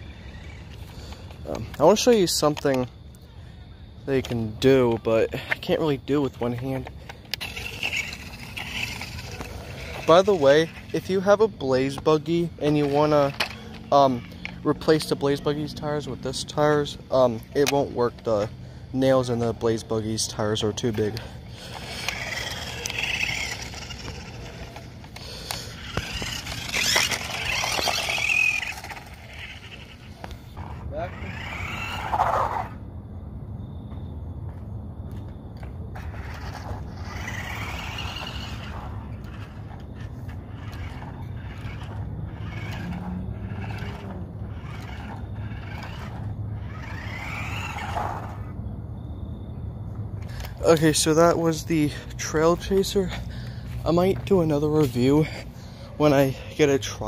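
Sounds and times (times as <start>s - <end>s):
toy car electric motor whine: 0.0s - 2.4s, 5.8s - 32.8s, 35.9s - 48.6s
tyre noise on concrete: 6.4s - 14.7s, 20.8s - 32.8s, 33.8s - 48.5s.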